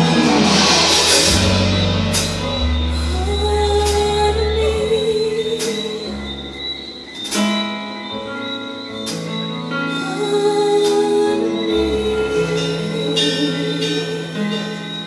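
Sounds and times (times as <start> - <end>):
cymbal crashes: 0.0 - 3.5
live band playing: 0.0 - 15.0
woman singing with vibrato: 3.0 - 6.8, 9.9 - 15.0.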